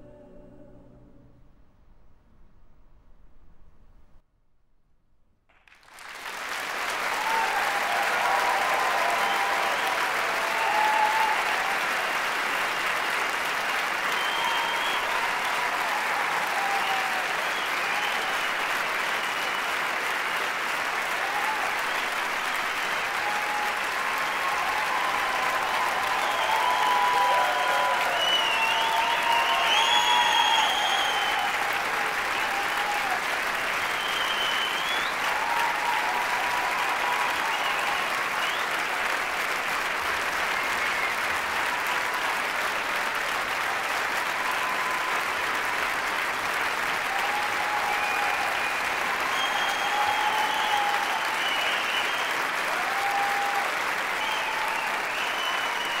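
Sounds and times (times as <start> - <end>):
large audience applauding: 5.6 - 56.0
crowd cheering: 5.7 - 56.0.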